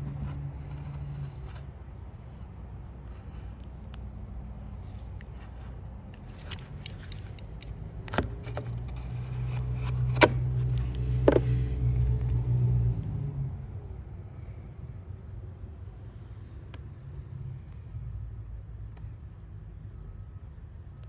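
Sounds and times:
utility knife scoring wood: 0:00.0 - 0:01.7, 0:05.0 - 0:11.6
vehicle engine running: 0:00.0 - 0:14.1.

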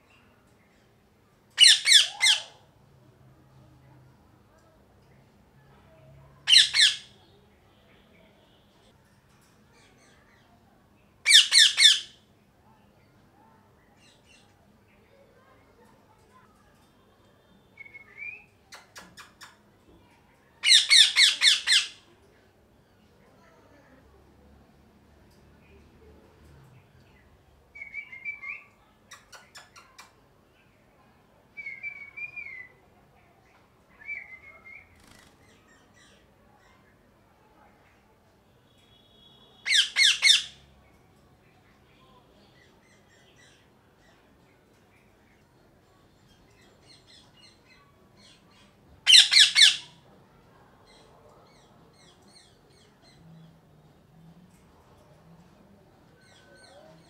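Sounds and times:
parakeet screeching: 0:01.6 - 0:02.5, 0:06.5 - 0:07.1, 0:11.3 - 0:12.1, 0:20.6 - 0:22.0, 0:39.6 - 0:40.6, 0:49.0 - 0:50.0
faint high chirps: 0:03.5 - 0:22.2, 0:25.2 - 0:57.0
parakeet whistled calls: 0:49.1 - 0:49.9.

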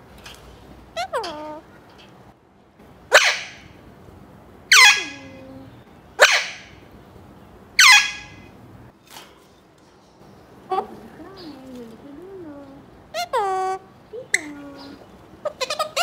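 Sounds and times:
parakeet harsh calls: 0:03.1 - 0:03.8, 0:04.7 - 0:05.4, 0:06.2 - 0:06.8, 0:07.8 - 0:08.5.

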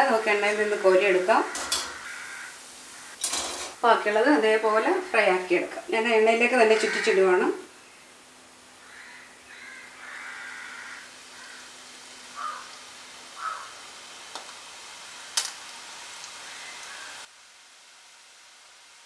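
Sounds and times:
hot oil sizzling in a pan: 0:00.0 - 0:03.9, 0:08.1 - 0:19.0
crow cawing: 0:00.7 - 0:03.2, 0:06.8 - 0:07.2, 0:08.8 - 0:11.8, 0:12.4 - 0:12.8, 0:13.4 - 0:13.9, 0:16.4 - 0:17.2.

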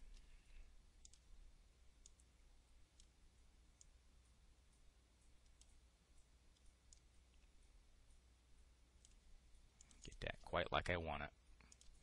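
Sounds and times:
computer mouse clicks: 0:01.0 - 0:01.3, 0:02.0 - 0:02.3, 0:02.9 - 0:03.2, 0:05.4 - 0:05.8, 0:06.5 - 0:07.5, 0:09.0 - 0:09.2, 0:09.8 - 0:10.2, 0:11.6 - 0:12.0.

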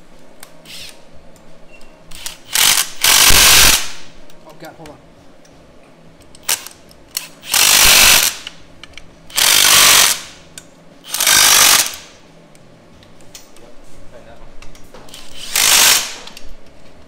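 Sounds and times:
impact driver hammering: 0:02.6 - 0:04.0.

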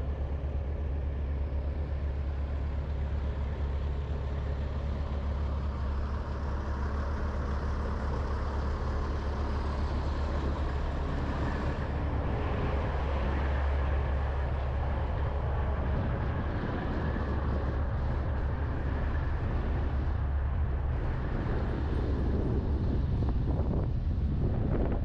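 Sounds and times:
road and air noise: 0:00.0 - 0:25.0
vehicle engine low rumble: 0:00.0 - 0:25.0.

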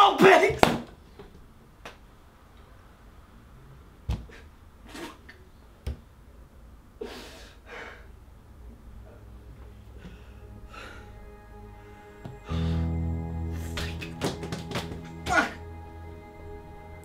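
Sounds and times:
man breathing heavily: 0:09.9 - 0:11.3.

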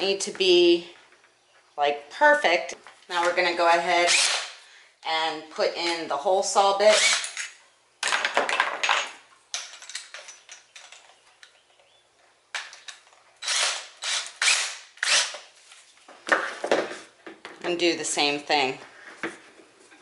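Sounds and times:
drill chuck ratcheting: 0:06.9 - 0:07.5, 0:13.4 - 0:15.4.

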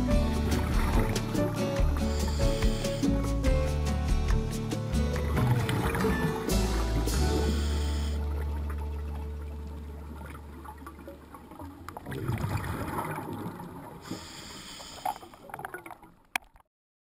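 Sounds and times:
music: 0:00.0 - 0:10.6
underwater bubbles gurgling: 0:05.1 - 0:16.6.

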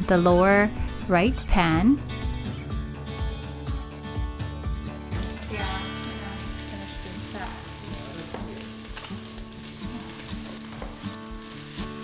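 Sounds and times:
vegetables sizzling in a pan: 0:05.2 - 0:12.0.

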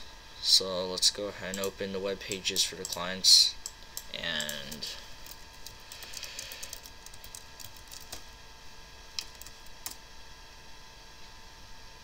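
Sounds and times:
faint computer whine: 0:00.0 - 0:12.0
keyboard typing: 0:01.4 - 0:08.4, 0:09.2 - 0:10.0.

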